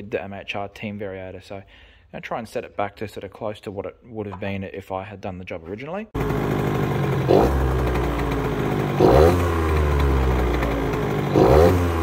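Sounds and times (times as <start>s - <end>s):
scooter engine revving: 6.2s - 12.0s.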